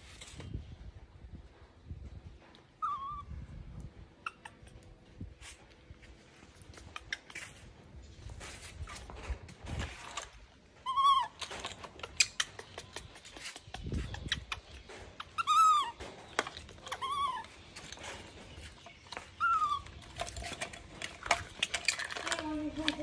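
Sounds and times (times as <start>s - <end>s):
baby monkey coo calls: 2.8s - 3.3s, 10.8s - 13.2s, 15.2s - 16.0s, 16.7s - 17.5s, 19.4s - 19.8s
plastic toy dishes clattering: 17.9s - 23.0s.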